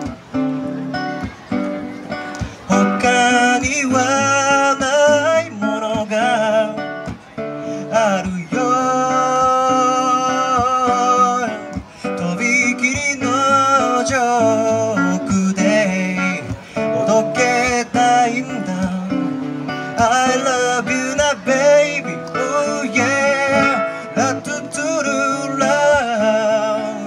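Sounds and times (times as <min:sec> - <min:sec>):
strummed acoustic guitar: 0:00.0 - 0:27.0
man singing: 0:02.6 - 0:27.0.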